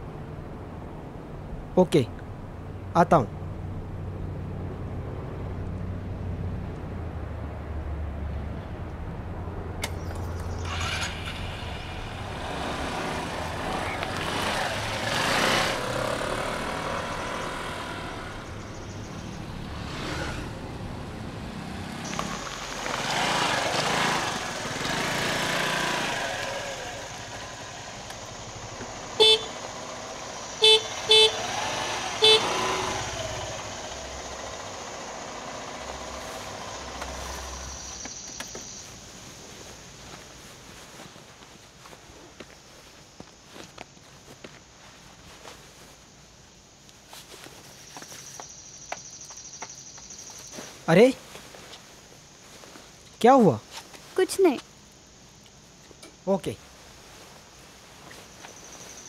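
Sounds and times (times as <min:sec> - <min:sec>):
scooter engine running: 0:10.2 - 0:38.7
motor scooter horn beeping: 0:29.2 - 0:29.7, 0:30.6 - 0:33.3.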